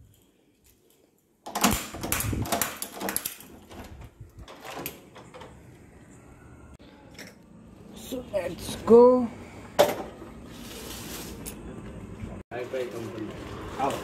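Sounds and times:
door latch clicking and rattling: 1.4 - 5.5.

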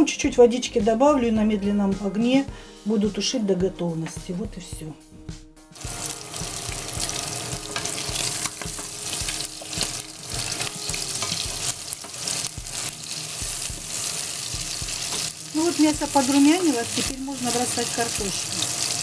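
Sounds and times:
meat sizzling in a frying pan: 5.8 - 19.0
spatula scraping a pan: 7.0 - 13.2.

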